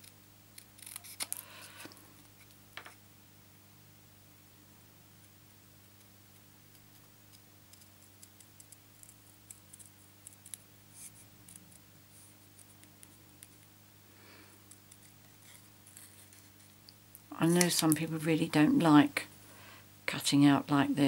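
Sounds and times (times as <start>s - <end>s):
scissors snipping paper: 0.6s - 1.4s.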